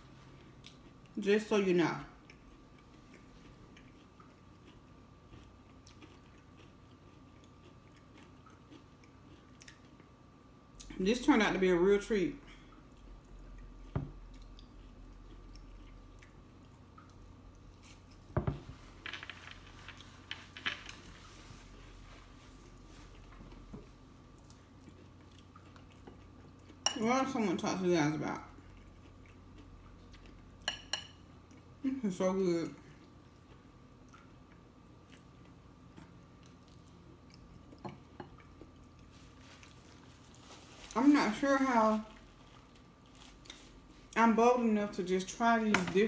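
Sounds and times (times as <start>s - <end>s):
soft chewing: 0.0s - 1.2s, 2.1s - 11.0s, 12.4s - 32.0s, 32.6s - 44.3s
person biting and chewing food: 2.3s - 10.2s.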